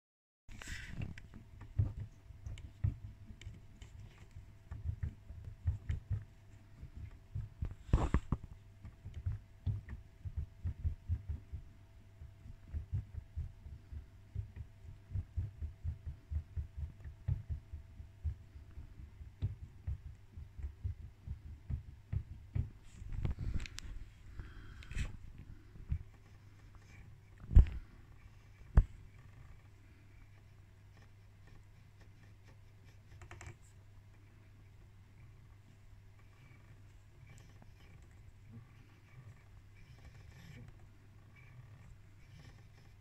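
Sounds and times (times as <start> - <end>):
dull low knocks: 1.4 - 29.8.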